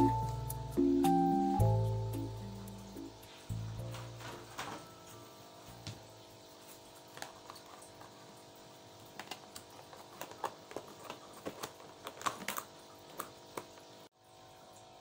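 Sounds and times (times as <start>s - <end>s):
faint background music: 0.0s - 6.7s.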